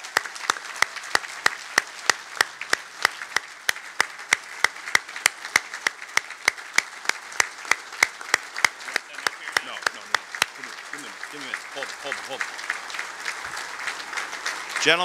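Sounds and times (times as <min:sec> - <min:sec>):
audience applauding: 0:00.0 - 0:15.0
sharp close claps: 0:00.0 - 0:15.0.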